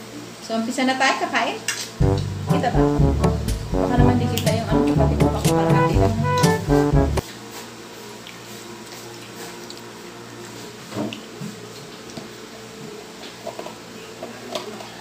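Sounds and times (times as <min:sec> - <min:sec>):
steady low hum: 0:02.0 - 0:07.2.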